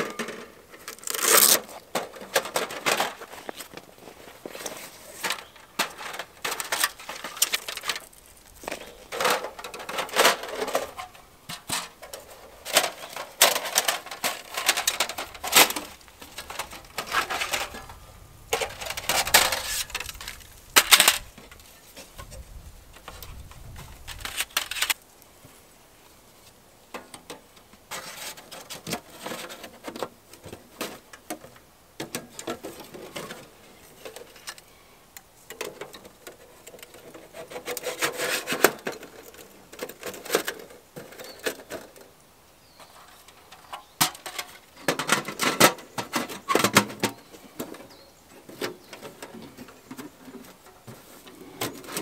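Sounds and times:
metal panels clinking and scraping: 0.0s - 22.4s, 23.0s - 25.0s, 26.9s - 34.7s, 35.5s - 42.1s, 42.8s - 52.0s
bag rustling: 0.9s - 1.8s.

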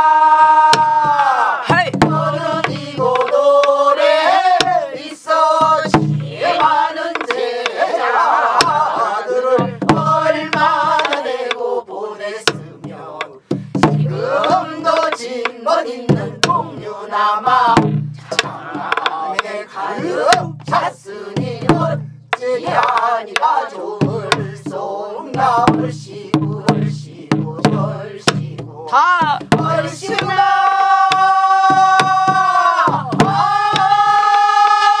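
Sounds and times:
group singing folk song: 0.0s - 35.0s
barrel drum thumps: 0.6s - 4.9s, 5.6s - 11.6s, 12.4s - 34.6s
drum stick clicks: 6.5s - 7.8s, 10.5s - 11.6s.

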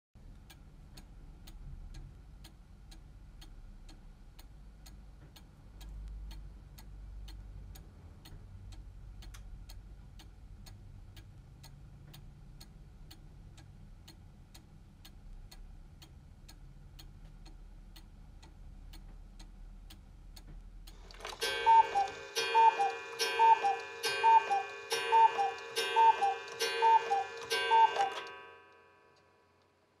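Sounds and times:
clock ticking: 0.2s - 28.5s
two-note cuckoo call: 21.4s - 28.4s
ringing chime tone: 21.4s - 29.2s.

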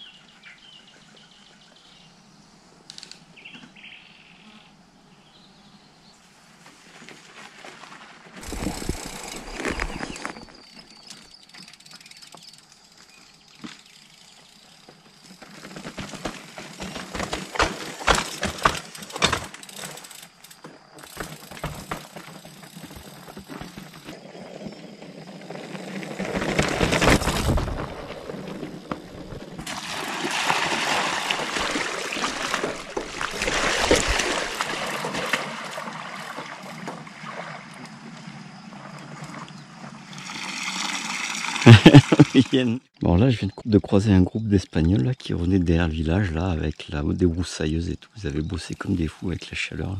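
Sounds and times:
tyre and wind hiss: 6.1s - 10.6s, 41.6s - 42.6s
bike rushing past: 8.0s - 11.4s, 21.0s - 42.1s
bike clattering over rocks: 14.9s - 24.2s, 26.1s - 29.8s.

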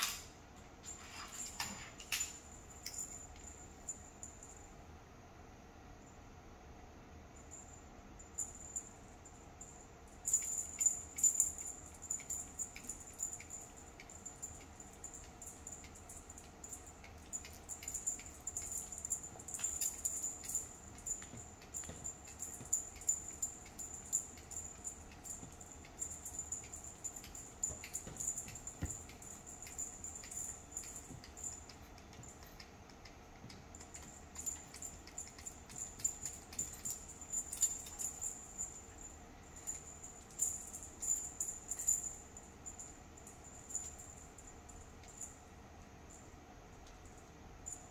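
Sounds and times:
faint high whine: 0.0s - 47.9s
wand toy ticks and rustles: 10.1s - 45.4s.

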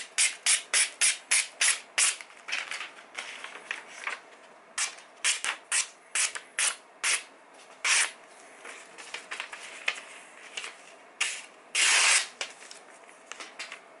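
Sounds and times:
knife slicing paper: 11.2s - 12.4s.

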